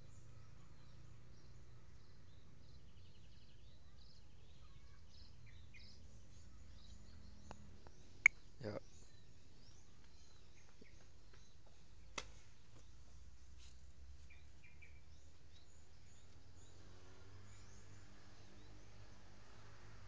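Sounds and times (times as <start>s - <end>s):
bird chirps: 0.0s - 13.2s
faint outdoor hum: 0.0s - 20.0s.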